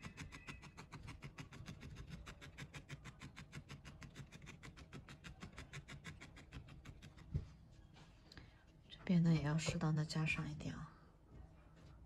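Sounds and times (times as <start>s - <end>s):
felting needle poking wool: 0.0s - 7.5s.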